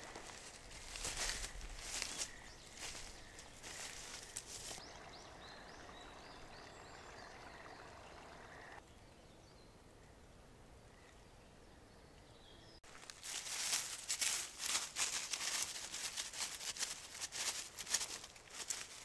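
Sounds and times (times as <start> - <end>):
footsteps swishing through grass: 0.0 - 4.8, 12.8 - 19.0
small bird chirping: 0.9 - 9.7.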